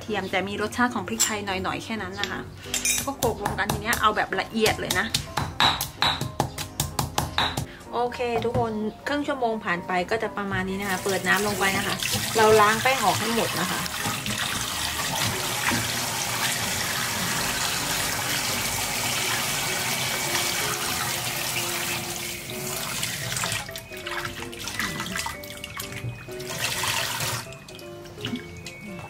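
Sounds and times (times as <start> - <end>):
tap water running into a bowl: 10.8 - 28.7.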